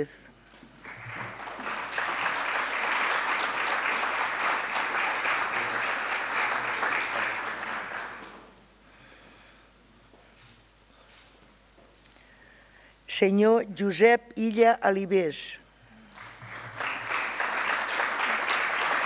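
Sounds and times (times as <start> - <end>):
audience applauding: 0.8 - 8.6, 16.1 - 19.0.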